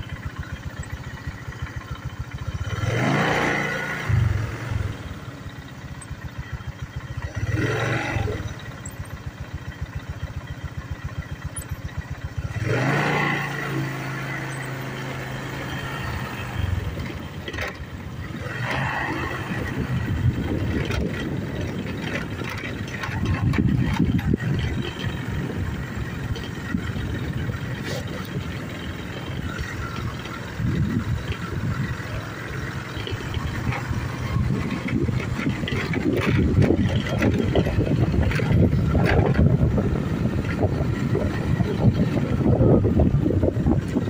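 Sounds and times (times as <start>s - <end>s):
small train engine running: 13.5s - 44.0s
wind buffeting microphone: 16.2s - 44.0s
carriage knocks and rattles: 20.2s - 25.4s, 32.8s - 39.7s.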